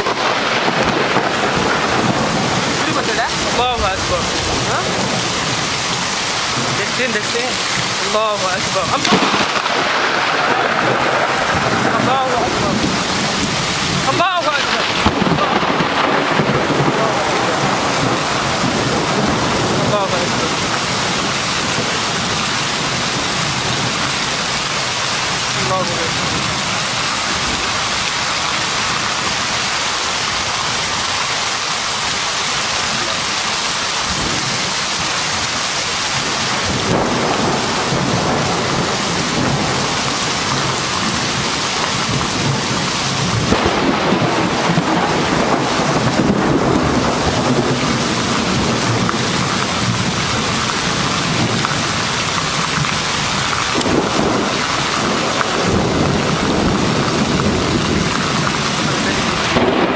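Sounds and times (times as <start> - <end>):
heavy rain hissing: 0.0 - 59.9
thunder rumbling: 0.0 - 59.9.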